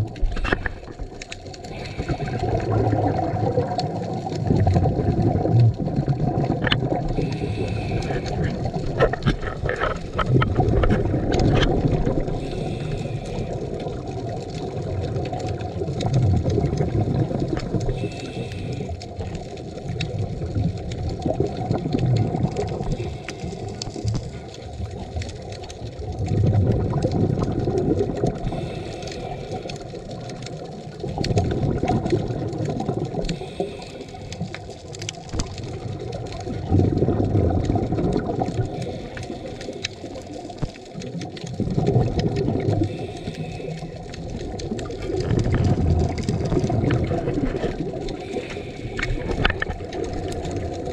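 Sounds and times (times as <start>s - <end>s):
bubbling exhaust underwater: 0.0s - 50.9s
regulator hiss on inhale: 1.6s - 2.7s, 7.1s - 8.8s, 12.2s - 14.0s, 17.8s - 19.4s, 22.7s - 24.6s, 28.4s - 30.1s, 33.2s - 34.7s, 38.6s - 40.2s, 42.8s - 44.3s, 47.6s - 49.7s.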